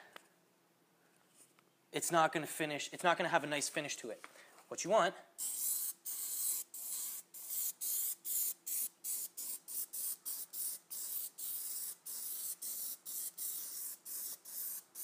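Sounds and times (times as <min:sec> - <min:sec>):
aerosol can spraying bursts: 0:05.4 - 0:15.0.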